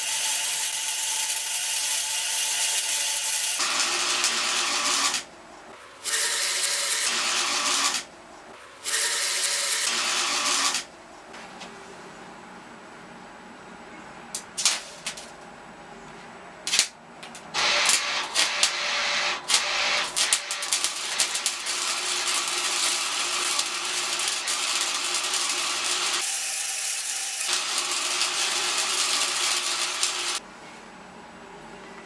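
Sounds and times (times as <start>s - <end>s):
arc welder crackling: 0.0s - 5.3s, 6.0s - 8.1s, 8.8s - 10.9s, 14.3s - 15.5s, 16.6s - 30.4s.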